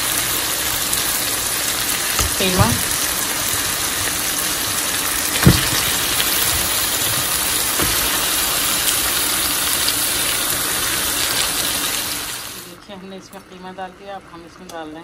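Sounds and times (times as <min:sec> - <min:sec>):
onions sizzling in hot oil: 0:00.0 - 0:12.8
thud: 0:05.4 - 0:05.9.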